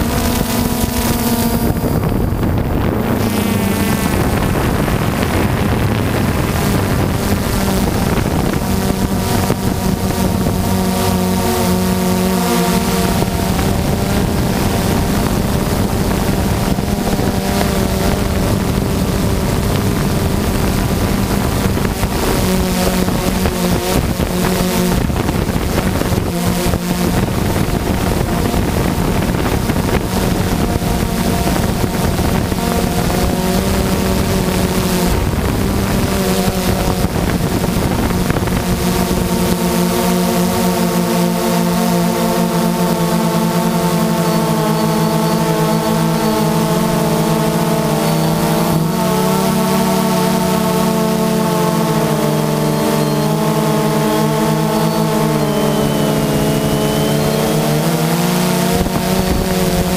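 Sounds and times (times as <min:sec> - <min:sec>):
drone motors humming: 0:00.0 - 0:59.9
wind noise hissing: 0:00.0 - 0:59.9.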